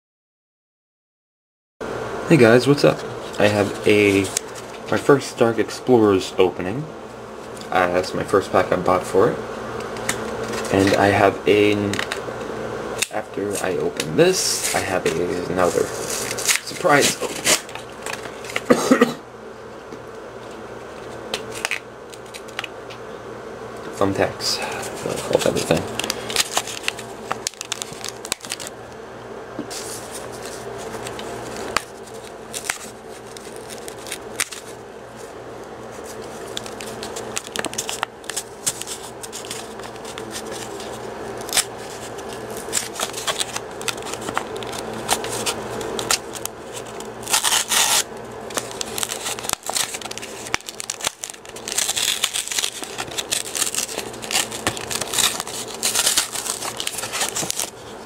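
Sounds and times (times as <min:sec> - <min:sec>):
plastic and foil crinkling: 0:03.2 - 0:05.0, 0:10.0 - 0:11.2, 0:14.5 - 0:18.8, 0:21.0 - 0:22.7, 0:24.6 - 0:28.7, 0:29.7 - 0:34.8, 0:35.9 - 0:58.0.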